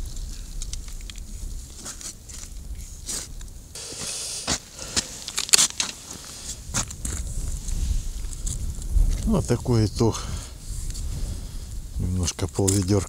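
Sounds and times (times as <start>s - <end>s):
wind buffeting microphone: 0.0s - 3.8s, 4.4s - 13.0s
footsteps on ice: 3.9s - 9.2s.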